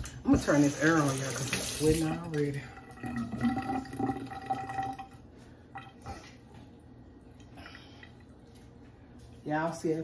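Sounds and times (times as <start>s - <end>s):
water running from tap: 0.3s - 5.2s.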